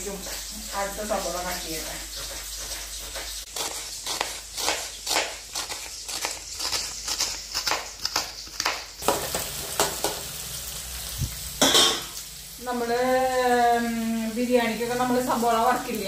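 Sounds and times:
metal spatula stirring in pan: 0.0s - 10.3s
onions sizzling in oil: 0.0s - 16.0s
knife chopping on wooden board: 2.2s - 10.2s.

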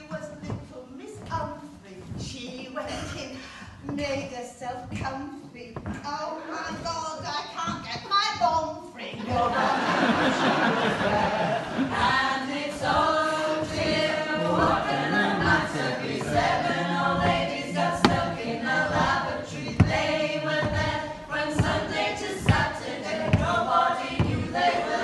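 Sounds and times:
women singing in harmony: 9.1s - 25.0s
sharp knocks: 12.8s - 24.8s.

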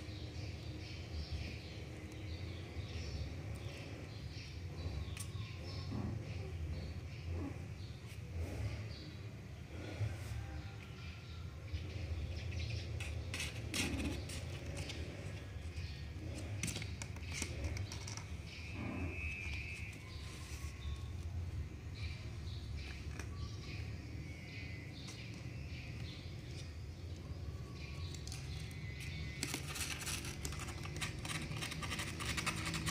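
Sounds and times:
claws scratching on cardboard: 13.0s - 18.3s, 28.1s - 32.9s.

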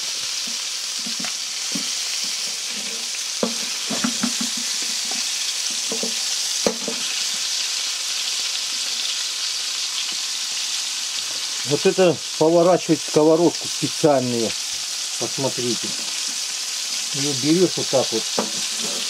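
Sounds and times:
fish sizzling in a pan: 0.0s - 19.0s
utensil knocking and scraping pan: 0.4s - 7.1s, 18.3s - 19.0s.

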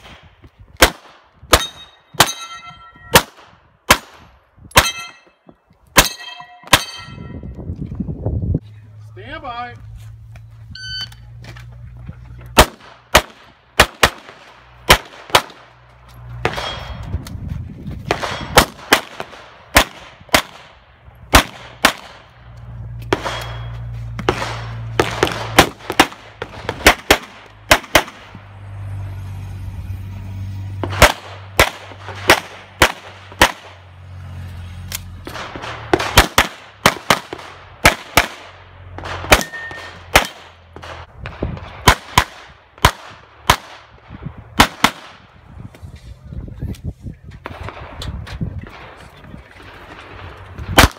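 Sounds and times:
pistol shots: 0.0s - 5.2s, 12.6s - 15.8s, 18.1s - 22.3s, 23.1s - 28.4s, 30.8s - 33.8s, 35.3s - 41.1s, 41.8s - 43.9s, 44.6s - 45.2s.

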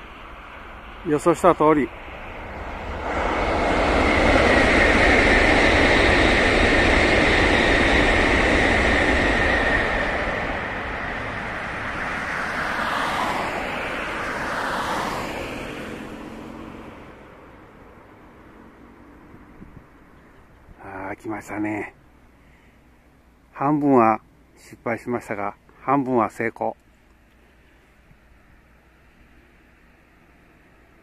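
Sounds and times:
high whine: 0.0s - 21.7s
bullet train passing with roar: 0.0s - 23.4s, 27.4s - 31.0s.

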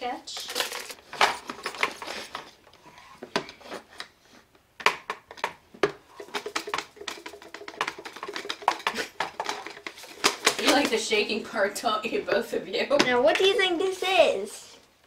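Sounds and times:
plastic toy rattling when shaken: 0.3s - 2.1s, 6.2s - 11.2s.

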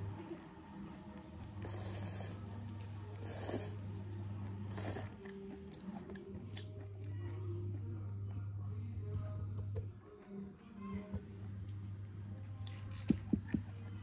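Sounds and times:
low steady hum: 0.0s - 14.0s
person slurping: 1.6s - 2.4s
person chewing: 4.7s - 8.4s.

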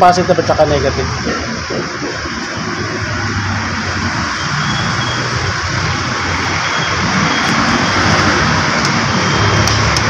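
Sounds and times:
steady rushing noise: 0.0s - 10.0s.

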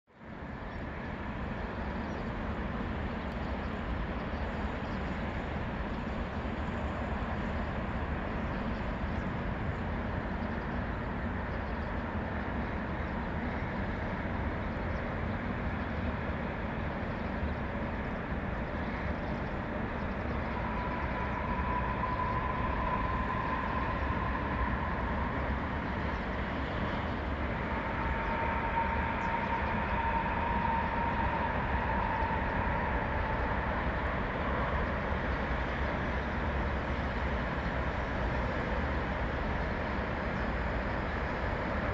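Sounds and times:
high whine: 18.6s - 41.9s.

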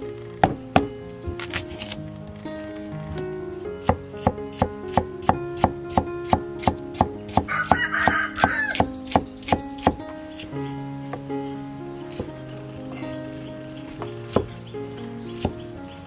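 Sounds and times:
knife chopping on wooden board: 3.9s - 10.0s.

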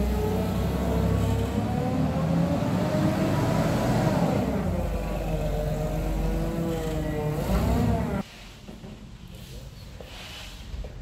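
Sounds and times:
forklift engine running: 0.0s - 8.2s.

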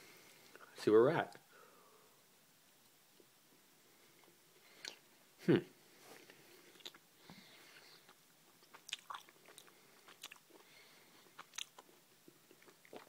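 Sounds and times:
person chewing: 4.2s - 5.0s, 6.2s - 13.0s.

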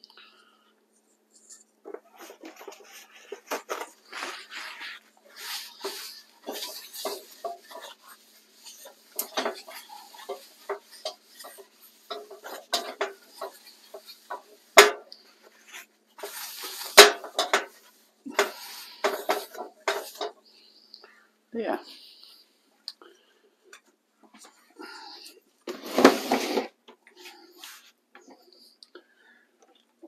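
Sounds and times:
paper towel scrubbing a wok: 1.4s - 20.7s, 24.8s - 28.4s
wok clanking on stove grate: 5.8s - 8.1s, 8.7s - 15.1s, 16.2s - 20.4s.

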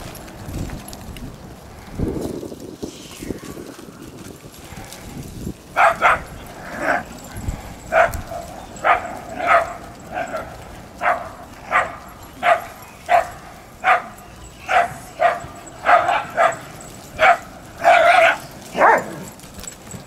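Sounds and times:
dog barking: 5.8s - 7.0s, 7.9s - 19.3s.

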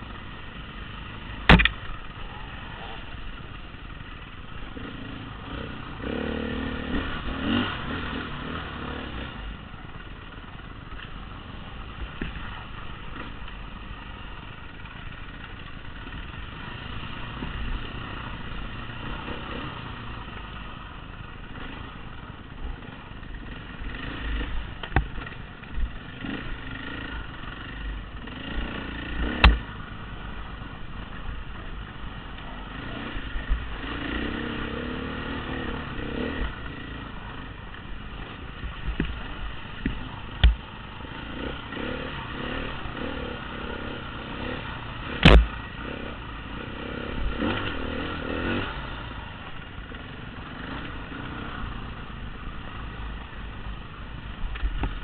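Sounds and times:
dirt bike engine: 0.0s - 55.0s
clattering over bumps: 1.4s - 2.0s
sharp knocks: 1.5s - 1.8s, 29.4s - 29.6s.

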